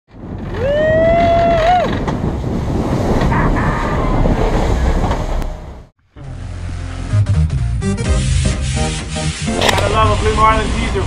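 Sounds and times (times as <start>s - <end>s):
waves: 0.1s - 5.9s, 9.4s - 11.0s
wind buffeting microphone: 0.1s - 5.9s.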